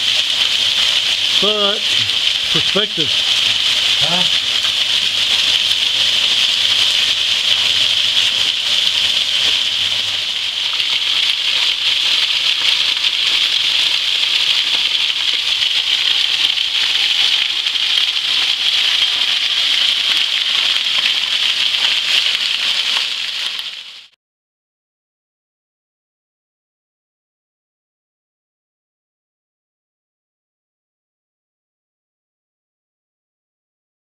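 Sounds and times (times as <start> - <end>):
waterfall splashing onto rocks: 0.0 - 24.2.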